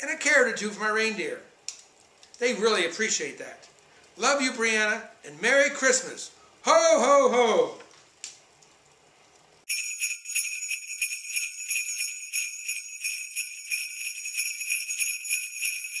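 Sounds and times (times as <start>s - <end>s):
sleigh bells jingling: 9.7s - 16.0s.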